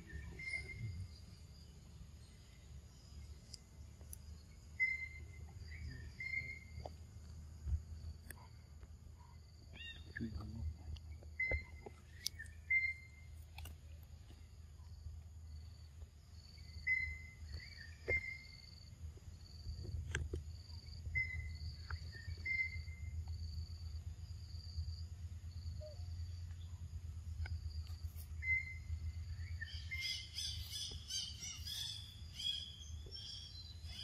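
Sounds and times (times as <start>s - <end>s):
short chirping bird calls: 0.0s - 1.2s, 4.8s - 6.8s, 11.4s - 13.4s, 27.7s - 34.0s.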